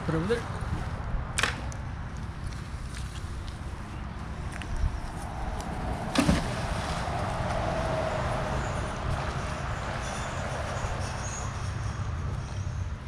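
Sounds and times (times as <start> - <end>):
magnet splashing into water: 6.1 - 7.0.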